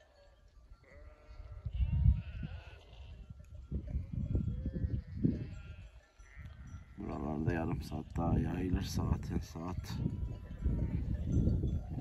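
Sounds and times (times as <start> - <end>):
sheep bleating: 0.8 - 3.2, 3.9 - 7.2.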